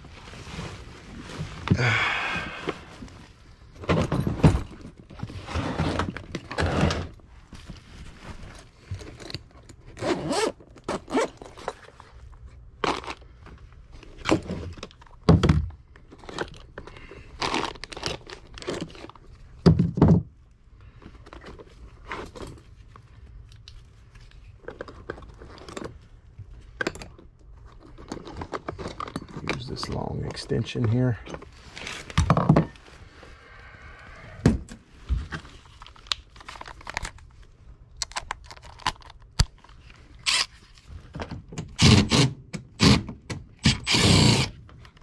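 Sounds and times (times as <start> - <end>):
tools knocking and thumping: 19.7 - 20.3.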